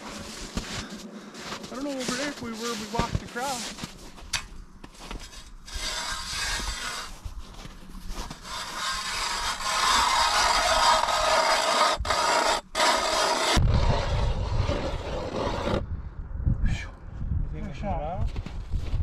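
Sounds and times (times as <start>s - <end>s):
ice auger rasping through ice: 5.2s - 7.2s, 8.2s - 15.8s.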